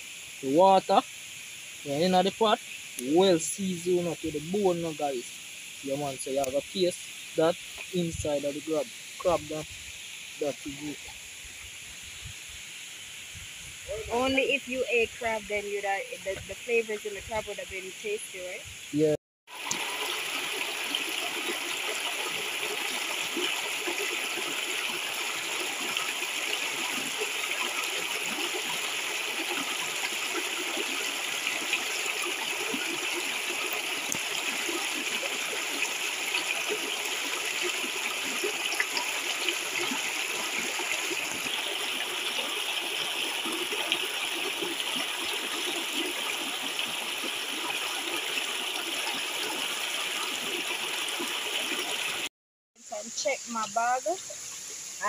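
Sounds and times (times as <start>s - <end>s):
river water rushing over rocks: 19.5s - 52.2s.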